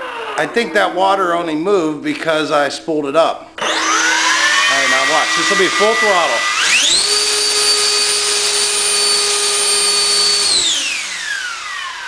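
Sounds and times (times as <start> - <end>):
electric ducted fan whining: 3.6 - 12.0.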